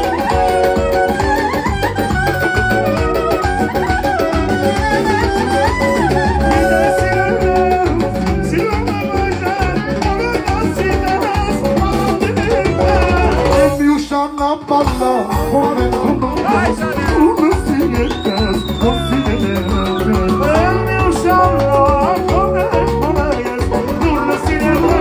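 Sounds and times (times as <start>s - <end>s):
live band music over speakers: 0.0s - 25.0s
man singing into microphone: 6.4s - 25.0s.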